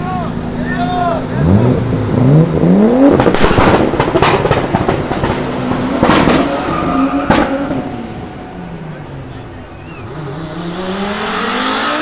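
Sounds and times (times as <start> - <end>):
exhaust bangs: 1.2 - 8.8
car engine pulling away: 1.3 - 12.0.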